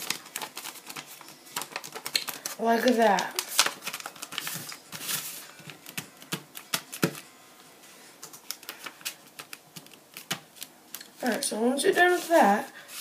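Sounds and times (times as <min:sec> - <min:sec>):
sharp paper clicks: 0:00.0 - 0:04.7, 0:08.2 - 0:11.4
paper rustling and crinkling: 0:00.0 - 0:07.2, 0:08.2 - 0:13.0.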